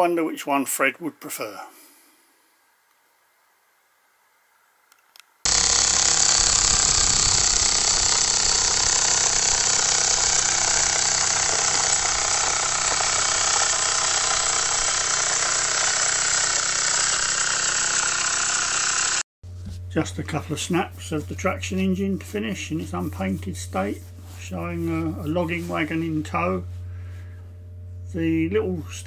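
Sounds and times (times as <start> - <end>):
steam hissing: 5.5 - 19.0
toy steam engine chuffing: 5.5 - 19.2.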